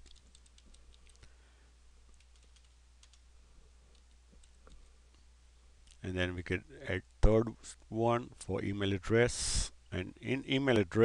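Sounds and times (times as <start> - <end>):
computer keyboard keystrokes: 0.0 - 1.2, 2.1 - 3.2.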